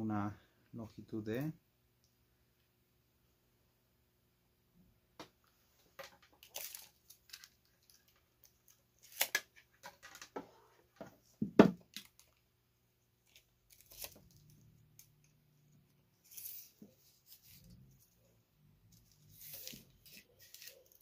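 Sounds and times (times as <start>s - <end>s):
cable rustling and clicking: 5.8s - 10.4s, 11.8s - 12.5s, 18.8s - 21.0s.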